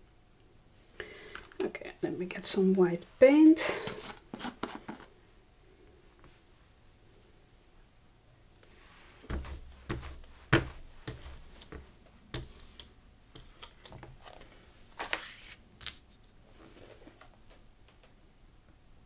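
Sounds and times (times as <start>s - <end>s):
paper rustling: 14.2s - 16.1s.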